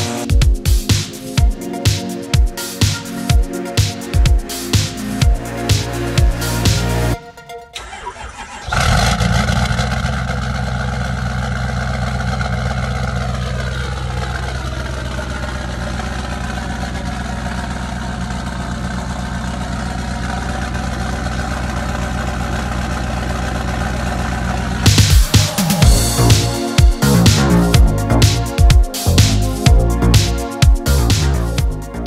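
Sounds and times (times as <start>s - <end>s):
diesel engine starting and idling: 5.0s - 30.2s.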